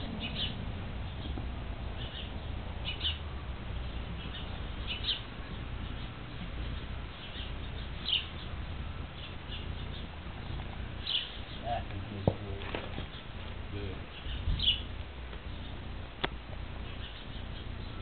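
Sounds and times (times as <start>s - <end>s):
bird chirps: 0.0s - 11.9s, 12.9s - 15.9s, 16.8s - 18.0s.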